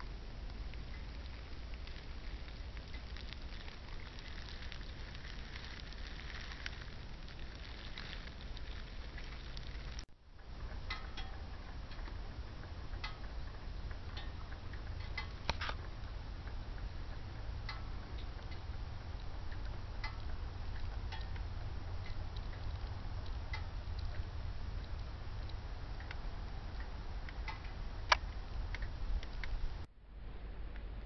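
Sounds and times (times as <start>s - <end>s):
crackles and ticks: 0.0s - 29.9s
steady low rumble: 0.0s - 31.0s.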